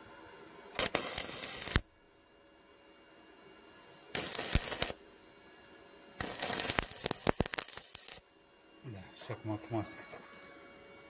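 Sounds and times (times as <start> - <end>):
welding arc crackling: 0.8 - 1.9, 4.1 - 5.0, 6.2 - 8.3.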